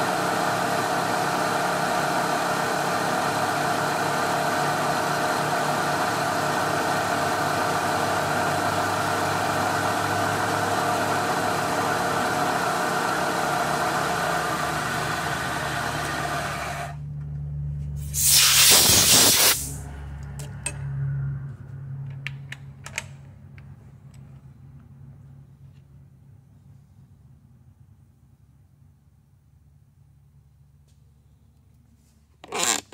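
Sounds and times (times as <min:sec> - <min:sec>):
loud air hiss: 0:18.0 - 0:19.8
low hum: 0:19.7 - 0:26.8.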